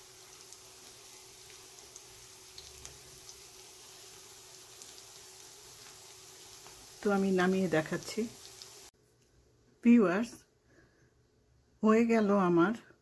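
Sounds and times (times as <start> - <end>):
fish frying in oil: 0.0 - 8.9
oil crackles and pops: 0.0 - 8.9.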